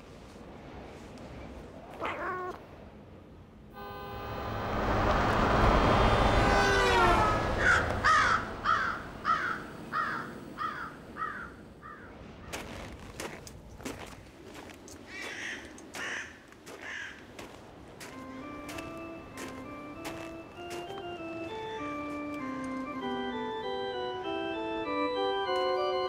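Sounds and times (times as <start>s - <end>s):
cat meowing: 1.9s - 2.6s
rushing sound with falling tone: 3.8s - 10.0s
crows cawing: 6.5s - 12.1s, 15.1s - 17.4s.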